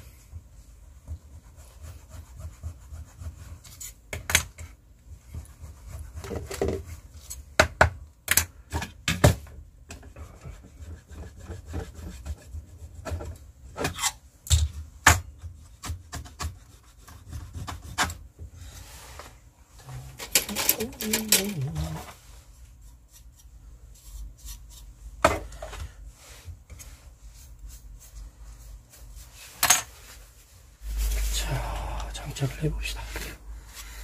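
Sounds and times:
computer parts clicking and scraping: 0:20.1 - 0:21.7.

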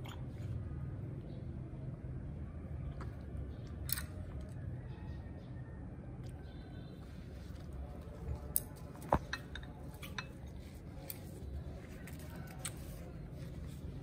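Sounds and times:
utensils clicking and clinking: 0:08.4 - 0:11.3.

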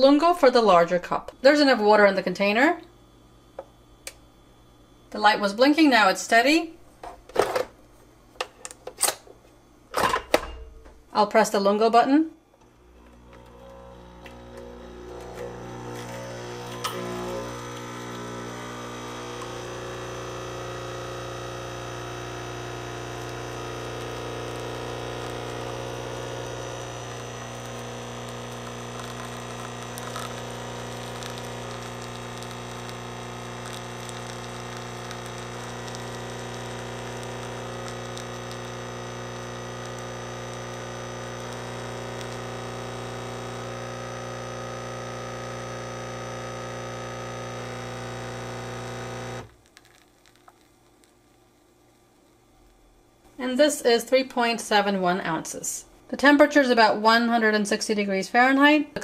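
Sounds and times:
espresso machine pump humming: 0:12.6 - 0:50.6.

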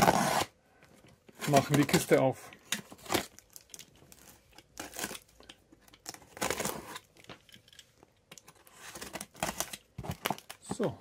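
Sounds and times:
knife slitting packing tape: 0:00.0 - 0:00.5.

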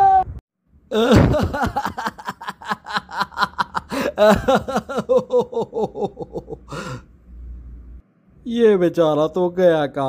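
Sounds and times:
man laughing: 0:00.9 - 0:07.0
breath: 0:06.7 - 0:07.1.

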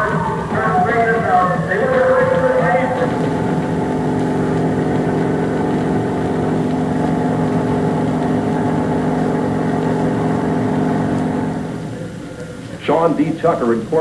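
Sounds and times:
propeller plane engine running: 0:02.3 - 0:12.6.

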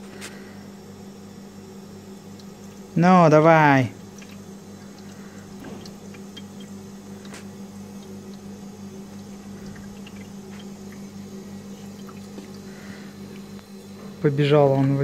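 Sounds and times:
ice maker humming: 0:00.0 - 0:15.0
faint ticks and drips: 0:02.3 - 0:03.0, 0:04.0 - 0:13.7.

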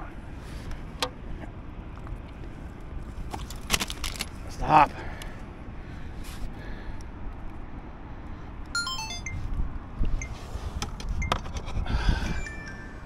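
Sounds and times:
falling high notes: 0:08.8 - 0:09.5, 0:12.4 - 0:13.0
low wind rumble on microphone: 0:09.4 - 0:12.6.

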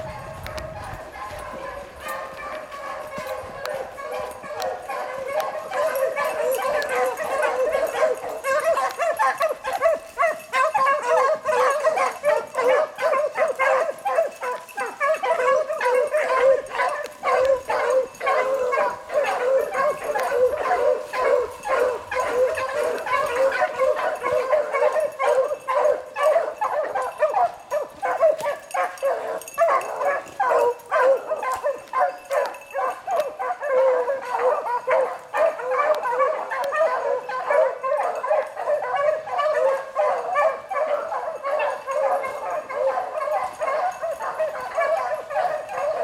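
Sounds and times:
hounds baying: 0:00.0 - 0:46.0.

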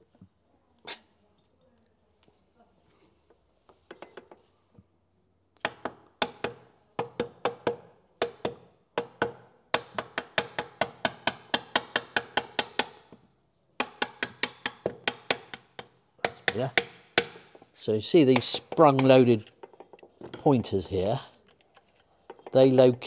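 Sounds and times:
metal parts tapped into place: 0:21.4 - 0:23.0.

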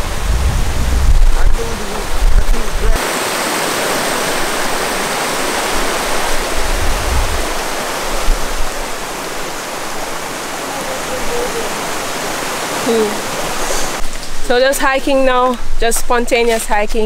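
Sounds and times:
low rumbles: 0:00.0 - 0:03.0
river rushing over boulders: 0:01.2 - 0:14.1.

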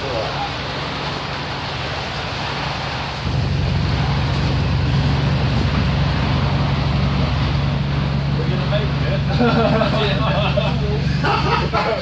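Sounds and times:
bus engine droning: 0:03.1 - 0:12.0.

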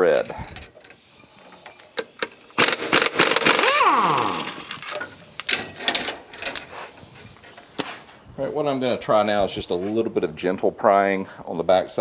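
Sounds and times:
impact wrench rattling: 0:00.0 - 0:07.9.

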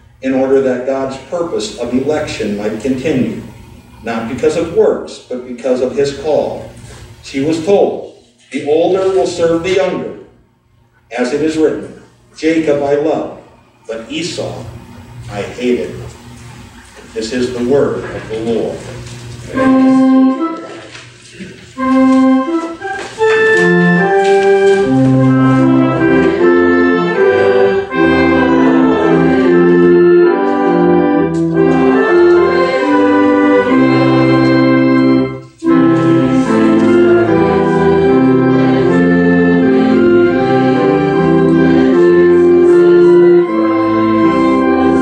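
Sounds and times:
church organ playing chords: 0:00.0 - 0:08.1, 0:08.8 - 0:45.0.

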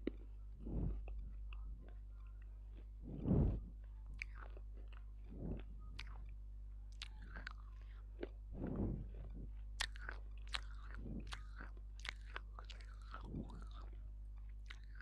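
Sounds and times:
crunchy chewing: 0:00.0 - 0:15.0
soft swallowing gulps: 0:02.8 - 0:06.2, 0:07.0 - 0:14.0.

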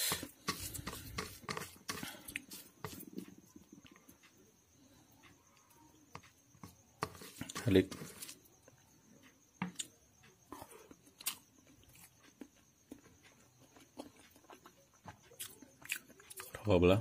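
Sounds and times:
fingers mixing rice on metal plate: 0:00.0 - 0:04.3, 0:05.4 - 0:08.8.

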